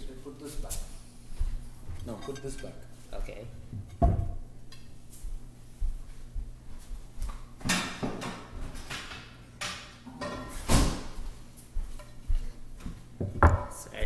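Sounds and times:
plates being handled: 1.8 - 4.4.

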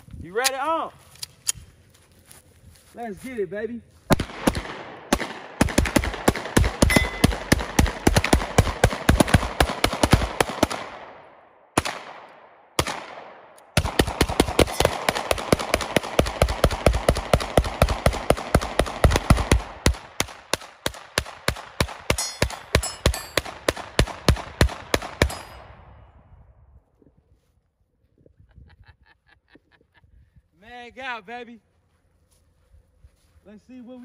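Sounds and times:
rapid handgun fire with echoes: 4.1 - 25.9.

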